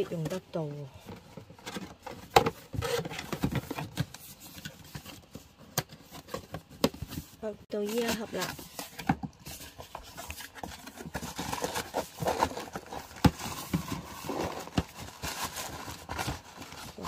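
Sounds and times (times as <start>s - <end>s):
wrapping rustling: 7.2s - 17.0s.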